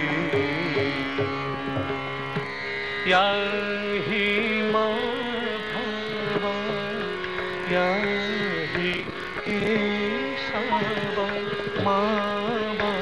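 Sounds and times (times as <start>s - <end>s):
held drone tones: 7.9s - 13.0s.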